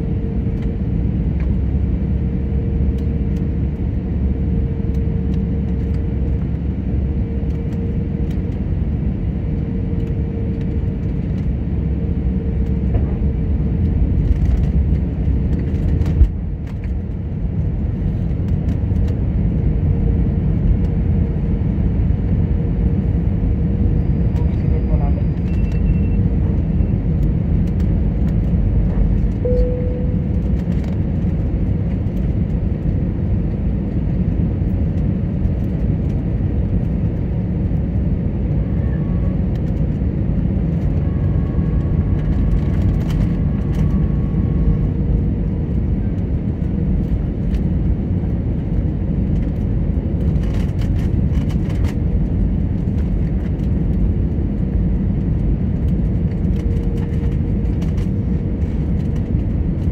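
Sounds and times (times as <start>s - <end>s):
aircraft cabin rumble: 0.0s - 59.9s
faint steady whine: 29.3s - 31.0s.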